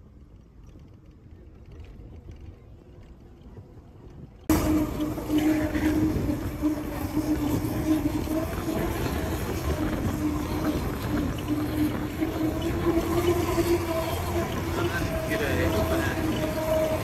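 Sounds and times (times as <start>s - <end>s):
road rumble: 0.0s - 17.0s
vehicle engine drone: 0.0s - 17.0s.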